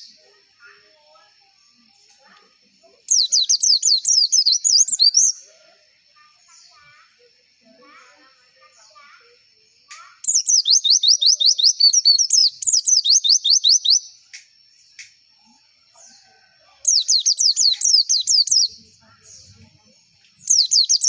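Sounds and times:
bird singing whistled notes: 3.1 - 5.5, 10.0 - 15.1, 16.8 - 21.0.

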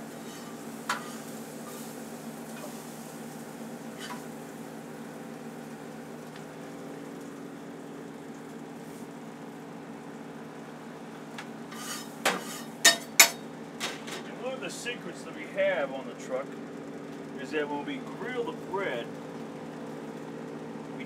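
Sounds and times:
food sizzling on a grill: 0.0 - 7.5, 8.4 - 9.2, 11.6 - 13.4
kitchen equipment hum: 0.0 - 21.0.

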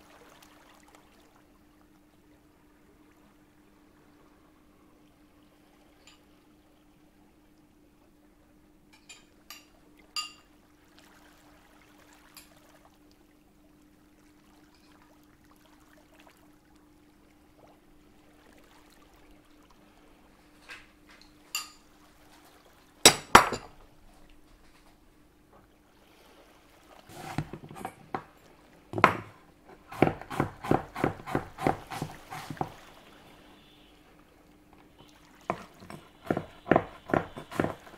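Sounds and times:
faint steady hum: 0.0 - 37.9
glass kitchenware clinking: 9.0 - 10.4, 23.1 - 23.7.

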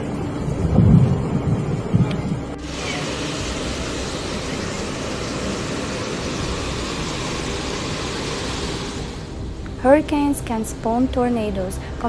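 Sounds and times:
floodwater rushing: 0.0 - 9.5.

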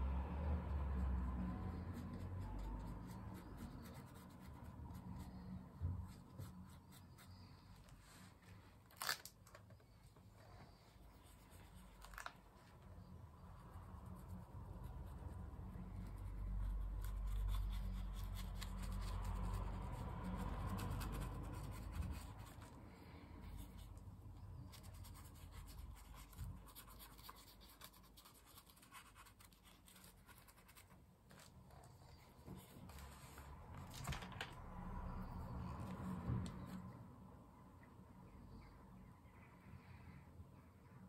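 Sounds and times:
paintbrush scratching on paper: 0.7 - 8.4, 10.4 - 33.7.

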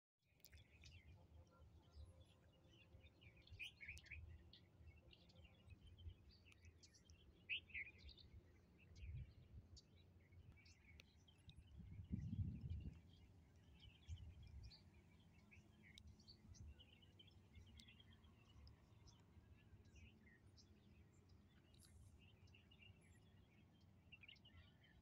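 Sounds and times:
small birds chirping: 0.4 - 25.0
wind rumble on microphone: 9.0 - 9.7, 11.5 - 14.8.

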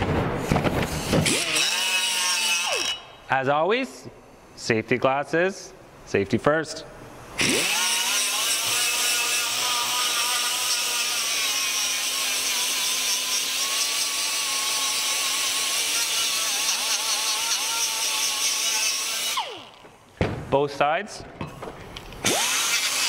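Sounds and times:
pneumatic die grinder whining: 0.7 - 3.2, 7.4 - 19.8, 22.0 - 23.0.

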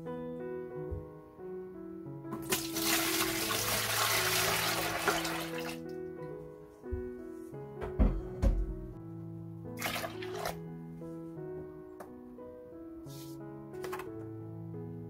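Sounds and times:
piano background music: 0.0 - 15.0
liquid pouring and splashing: 2.4 - 5.8, 9.8 - 10.6.

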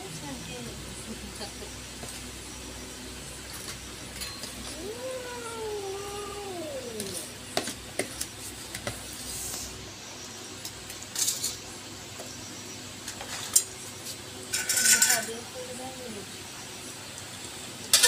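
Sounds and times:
cat meowing: 4.6 - 7.3.

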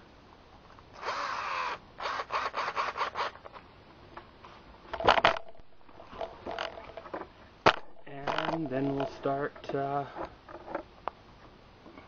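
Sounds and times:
screws scraping into wood: 1.0 - 3.5.

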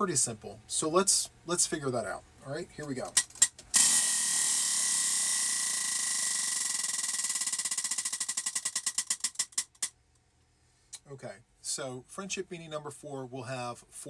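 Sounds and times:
prize wheel flapper clicking: 3.2 - 9.9.

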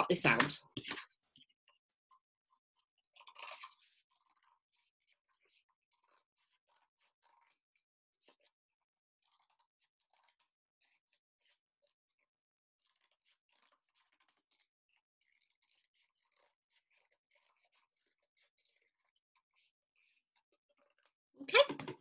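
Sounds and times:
scissors cutting cardboard: 12.8 - 14.7, 15.3 - 19.2.

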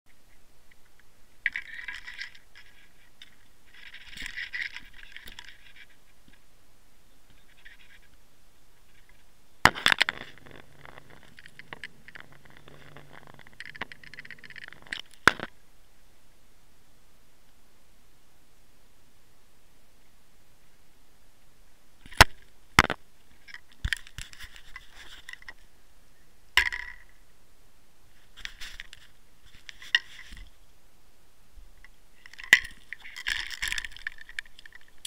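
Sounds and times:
scraping and rattling: 1.4 - 6.0, 8.9 - 15.5
fishing gear rustling: 1.4 - 6.4, 8.9 - 15.5, 28.1 - 30.6, 32.2 - 35.0.

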